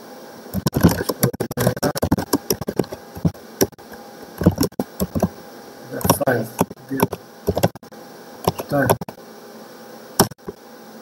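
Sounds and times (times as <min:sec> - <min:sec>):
keyboard typing: 0:00.6 - 0:03.8, 0:04.4 - 0:05.3, 0:06.0 - 0:07.8, 0:08.4 - 0:09.2, 0:10.2 - 0:10.6.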